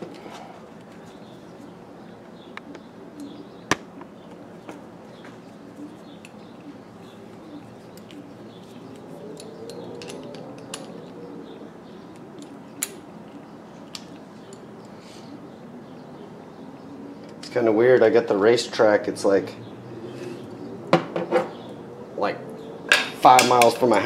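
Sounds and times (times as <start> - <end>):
low background hum: 0.0 - 24.0
metal tools clicking and tapping: 8.8 - 11.2.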